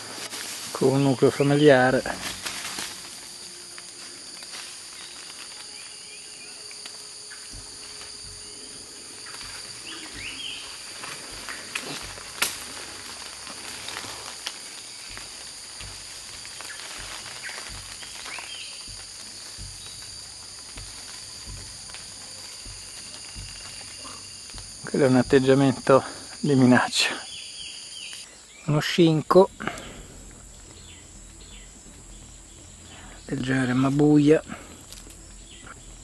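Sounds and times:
insect chorus: 0.0s - 36.0s
low thumps: 6.9s - 26.8s, 29.3s - 36.0s.

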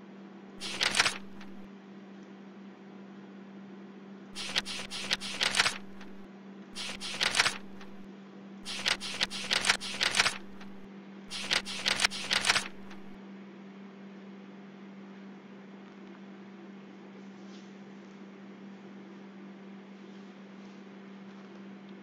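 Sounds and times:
computer mouse clicking: 0.6s - 1.7s, 4.4s - 13.2s
electrical hum: 0.6s - 1.7s, 4.4s - 13.2s.

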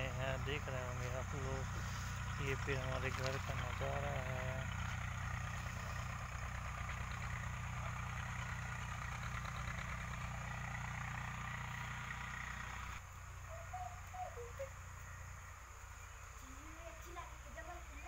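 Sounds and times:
tractor engine humming: 0.0s - 18.0s
faint call: 13.4s - 15.5s.

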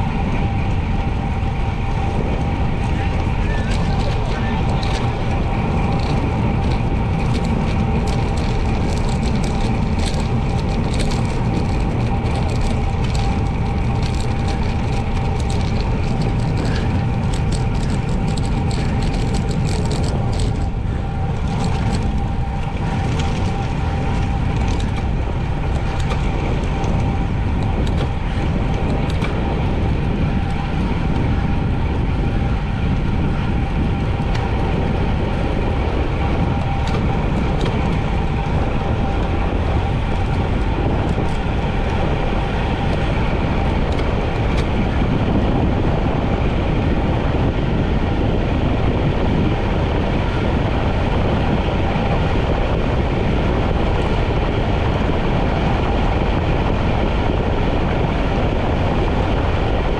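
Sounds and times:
bicycle road noise: 0.0s - 59.9s
steady hum: 0.0s - 59.9s
wind rush: 0.0s - 59.9s.

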